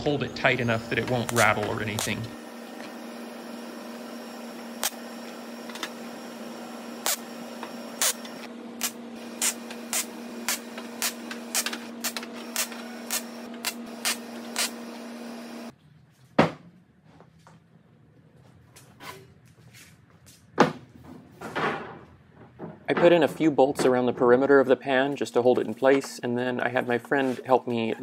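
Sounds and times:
welder hiss and hum: 0.0 - 15.7
crackling weld bursts: 0.4 - 15.7.

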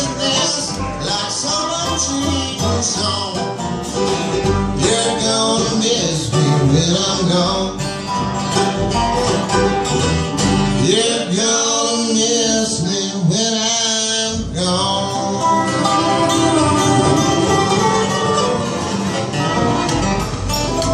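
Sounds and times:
mandolin: 0.0 - 13.6, 14.3 - 20.9
strummed acoustic guitar: 0.0 - 20.9
upright bass: 0.0 - 20.9
person singing: 10.8 - 20.0.

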